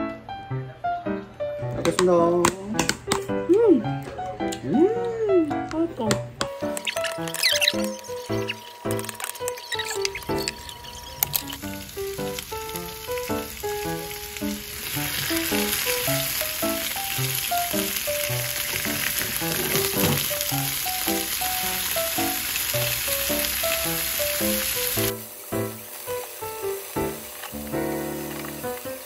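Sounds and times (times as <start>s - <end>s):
greens sizzling in frying pan: 6.5s - 29.0s.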